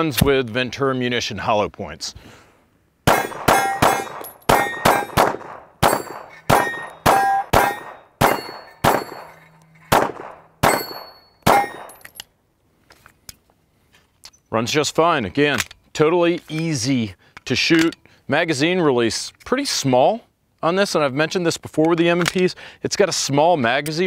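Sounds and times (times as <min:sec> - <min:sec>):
pistol shots: 0:03.1 - 0:12.0
steel targets ringing: 0:03.1 - 0:12.2.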